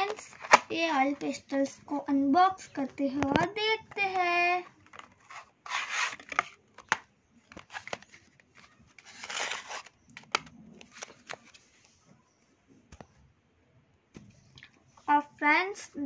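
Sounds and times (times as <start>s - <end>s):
paperboard rustling and scraping: 4.8s - 12.0s.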